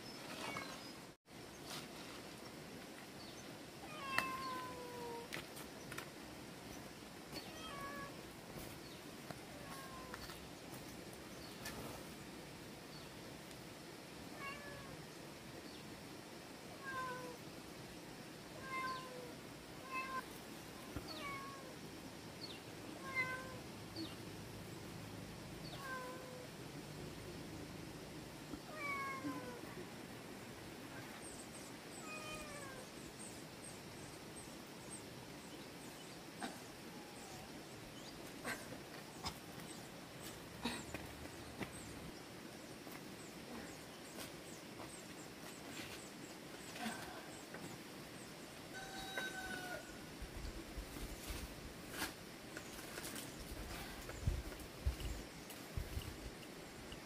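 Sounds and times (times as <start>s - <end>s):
animal calls falling in pitch: 48.8s - 49.9s.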